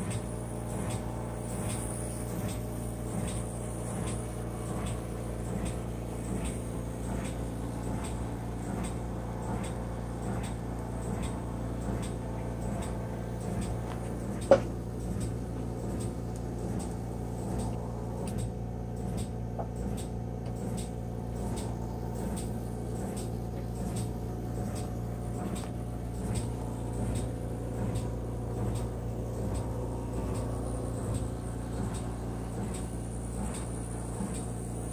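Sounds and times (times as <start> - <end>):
light regular ticks: 0.0 - 34.6
model train motor humming: 0.0 - 34.9
sharp click: 16.0 - 22.5.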